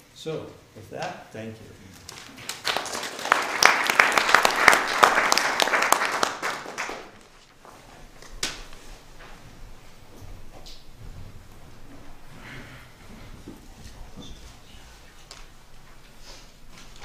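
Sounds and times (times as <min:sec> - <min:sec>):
audience applauding: 0:02.1 - 0:07.4.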